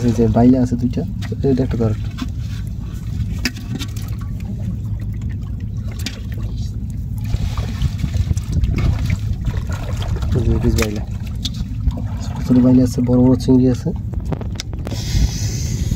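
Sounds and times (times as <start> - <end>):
low rumble: 0.0 - 15.9
small splashes in bucket: 3.3 - 13.2.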